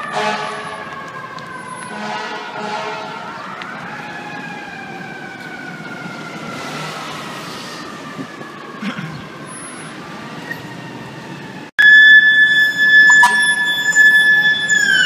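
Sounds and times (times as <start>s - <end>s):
fire truck siren wailing: 0.0s - 15.0s
street traffic: 0.0s - 15.0s
loud steady blaring tone: 11.8s - 15.0s.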